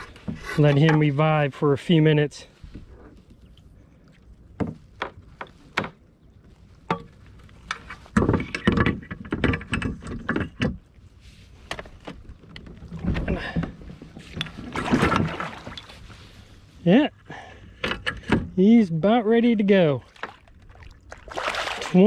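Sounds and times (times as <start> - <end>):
water sloshing: 2.5 - 16.8, 19.8 - 22.0.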